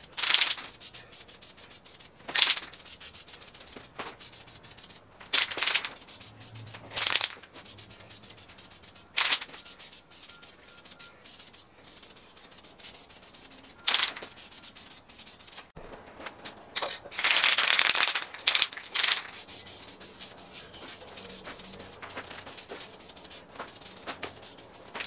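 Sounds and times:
spray paint can hissing: 0:00.0 - 0:15.7, 0:17.2 - 0:25.0.

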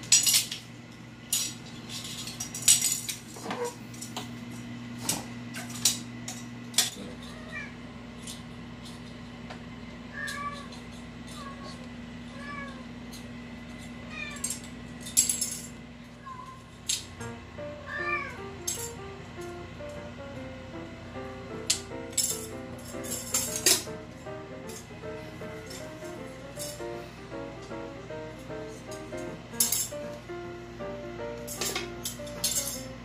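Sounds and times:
kittens mewing: 0:17.8 - 0:18.4.

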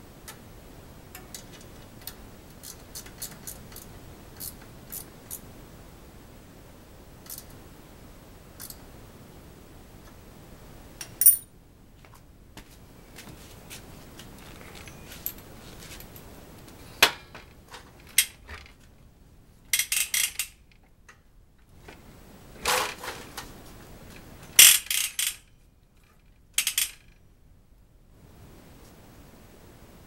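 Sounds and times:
bicycle parts rattling clacks: 0:19.7 - 0:20.8, 0:24.6 - 0:27.2.

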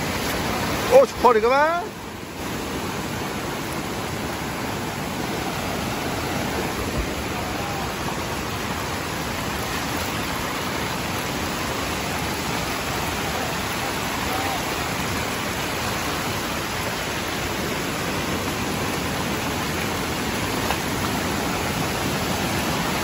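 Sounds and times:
heavy rain pouring: 0:00.0 - 0:23.0
running floodwater: 0:00.0 - 0:23.0.

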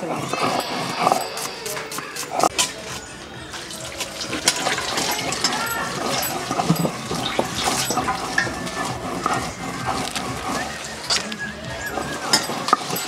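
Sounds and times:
water splashing into metal bowl: 0:03.5 - 0:13.0.

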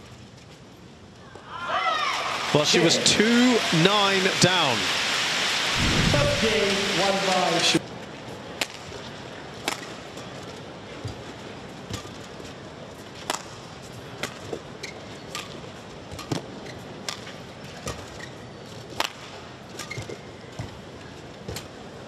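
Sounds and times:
hall background noise: 0:02.3 - 0:08.5.

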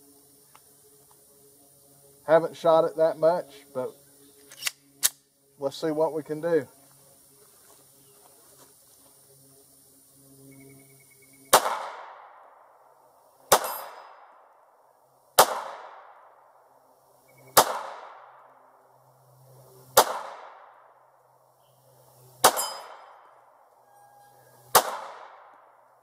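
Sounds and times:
pistol shots with echo: 0:11.5 - 0:12.4, 0:13.5 - 0:14.3, 0:15.4 - 0:16.2, 0:17.5 - 0:18.4, 0:20.0 - 0:20.8, 0:22.4 - 0:23.1, 0:24.7 - 0:25.5.

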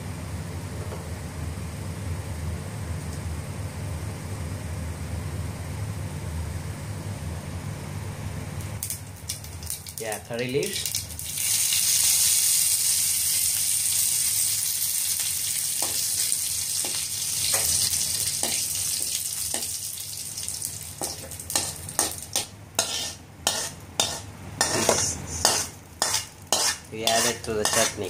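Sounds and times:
seeds sizzling in hot oil: 0:08.8 - 0:28.0
metal spatula scraping pan: 0:22.8 - 0:28.0.

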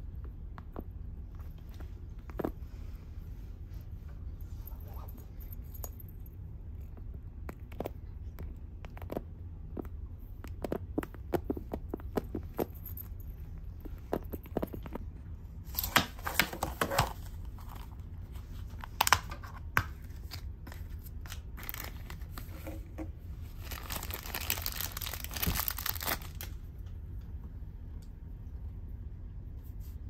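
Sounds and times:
plastic wrapper crinkling and tearing: 0:18.6 - 0:22.6, 0:23.5 - 0:26.6.

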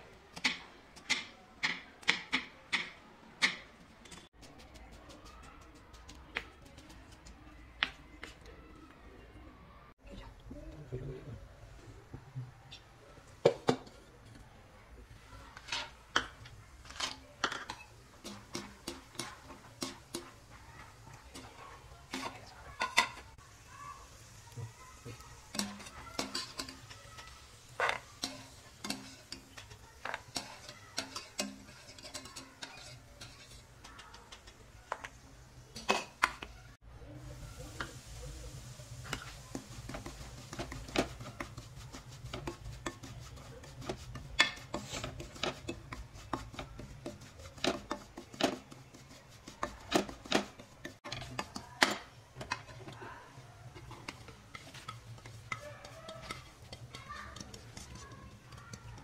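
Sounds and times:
spatula scraping semolina in wok: 0:15.3 - 0:24.4, 0:25.0 - 0:36.4, 0:37.2 - 0:59.0
metal utensils clinking on wok: 0:25.5 - 0:34.6, 0:53.7 - 0:59.0.

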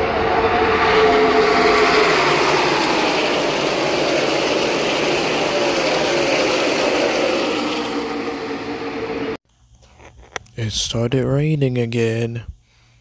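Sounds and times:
race car engines roaring past: 0:00.0 - 0:09.4.

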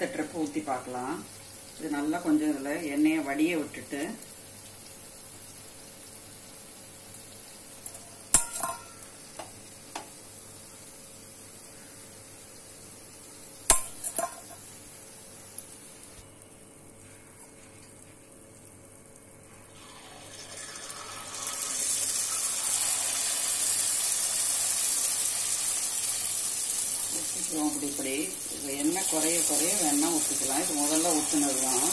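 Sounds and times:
batter sizzling in hot oil: 0:00.0 - 0:31.9
metal clinking on pan: 0:07.8 - 0:09.1, 0:13.7 - 0:14.7.

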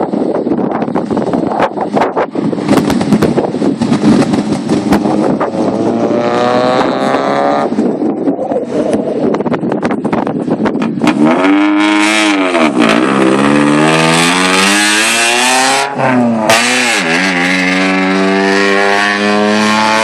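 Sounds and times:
wind buffeting microphone: 0:00.0 - 0:20.0
cars running: 0:00.9 - 0:20.0
car engine accelerating: 0:02.7 - 0:07.9, 0:11.0 - 0:20.0.

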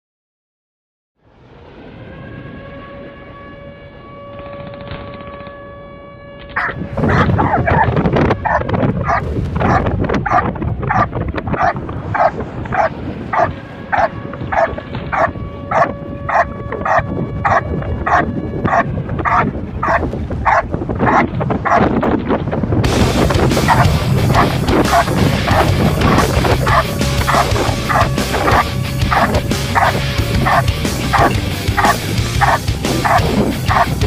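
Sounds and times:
dog barking: 0:06.6 - 0:21.9, 0:23.7 - 0:34.0.

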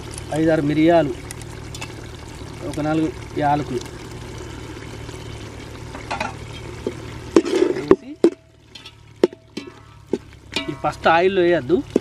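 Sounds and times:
meat sizzling in a pot: 0:00.0 - 0:12.0
metal ladle scraping a pot: 0:05.9 - 0:11.0.

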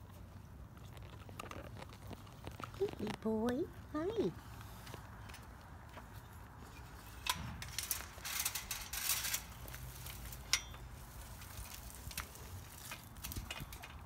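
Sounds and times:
chain-link gate rattling: 0:07.1 - 0:14.0
footsteps on dry leaves: 0:07.8 - 0:13.3.

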